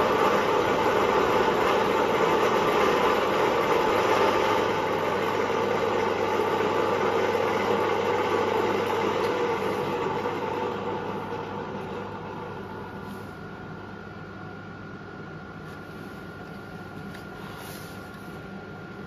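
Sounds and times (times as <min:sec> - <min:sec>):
drill running steadily: 0:00.0 - 0:13.0.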